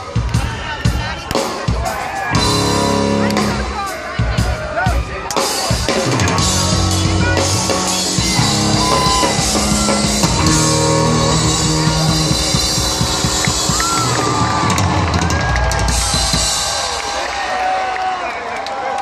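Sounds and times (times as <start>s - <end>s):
guitar: 0.0s - 16.8s
live rock band: 0.0s - 18.2s
drums: 0.0s - 18.9s.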